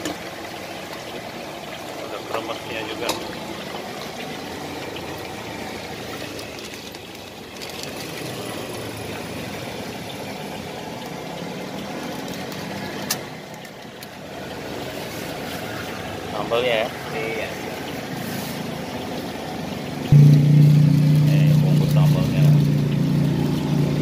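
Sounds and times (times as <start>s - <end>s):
vehicle engine running: 20.1s - 24.0s.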